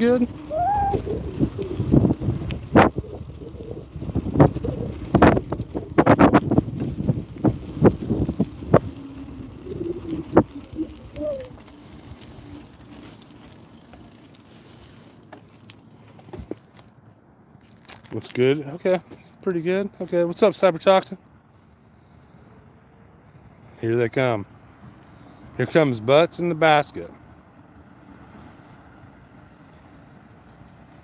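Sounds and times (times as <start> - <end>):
bicycle rattling and clunking: 0.0 - 18.6.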